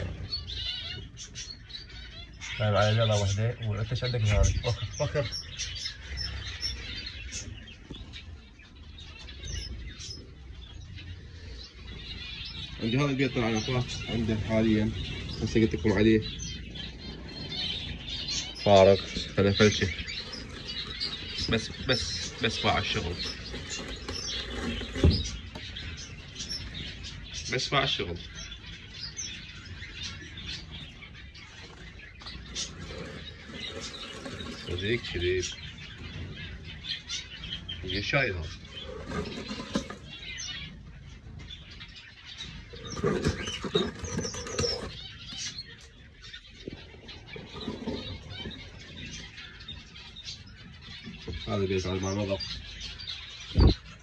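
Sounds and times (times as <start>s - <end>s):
finches chirping: 0.0s - 54.0s.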